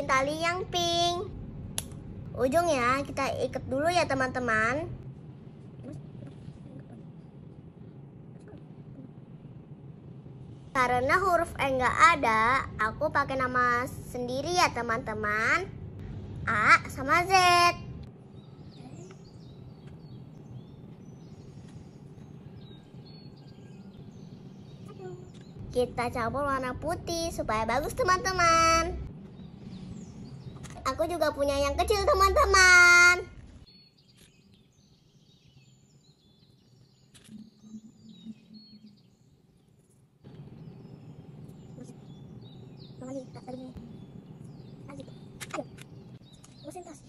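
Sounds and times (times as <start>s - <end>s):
birds chirping faintly: 16.5s - 47.0s
faint bird chirps: 33.7s - 47.0s.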